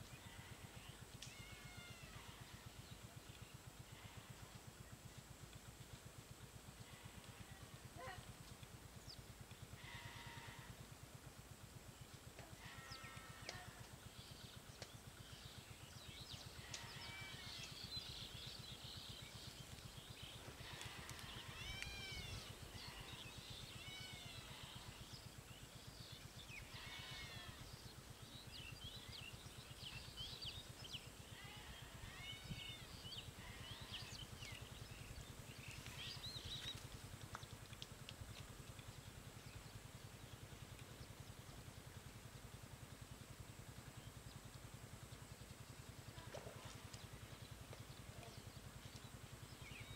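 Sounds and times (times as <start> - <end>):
low steady hum: 0.0 - 49.9
high arching animal calls: 20.4 - 25.2, 26.6 - 27.7.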